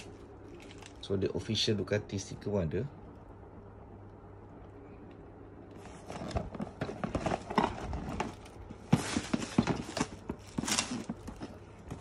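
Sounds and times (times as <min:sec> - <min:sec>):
crinkly rustling: 0:00.0 - 0:01.1, 0:05.7 - 0:12.0.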